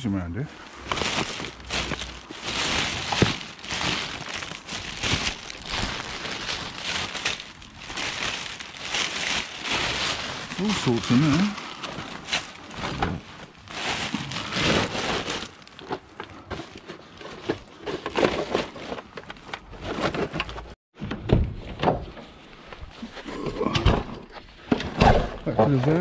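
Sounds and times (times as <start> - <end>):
plastic bag rustling and crinkling: 0.5 - 20.8.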